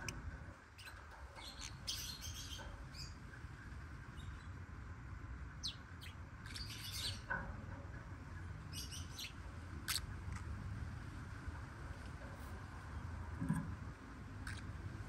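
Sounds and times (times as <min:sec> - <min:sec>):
low steady background hum: 0:00.0 - 0:15.0
lovebirds chirping: 0:00.8 - 0:03.2, 0:05.6 - 0:07.3.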